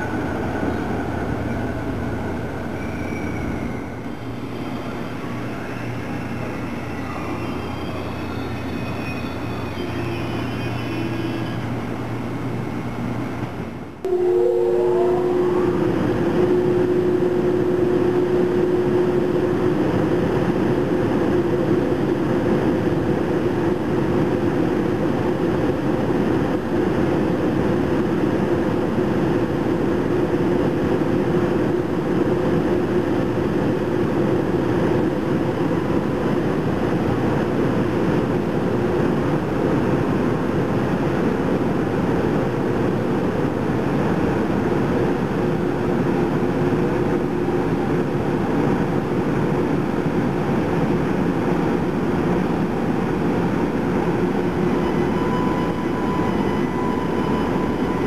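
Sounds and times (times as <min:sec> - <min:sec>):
locomotive equipment whirring: 0:00.0 - 0:38.2.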